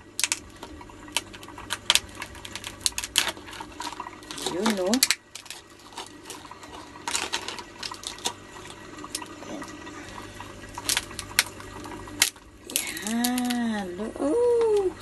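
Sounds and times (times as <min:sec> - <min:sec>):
crab shell cracking: 0:00.1 - 0:08.4, 0:10.8 - 0:13.6.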